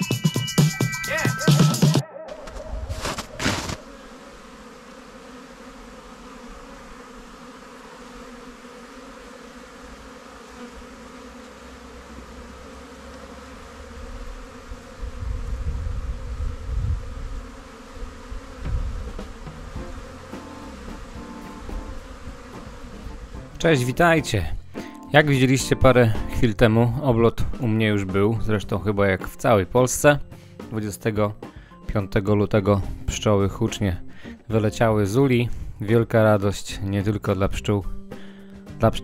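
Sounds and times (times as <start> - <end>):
bees buzzing: 0.0 - 26.3.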